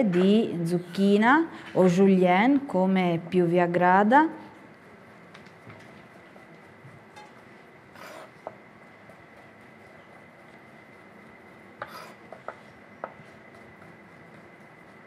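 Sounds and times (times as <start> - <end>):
knife scraping board: 8.0 - 8.4, 11.8 - 12.6.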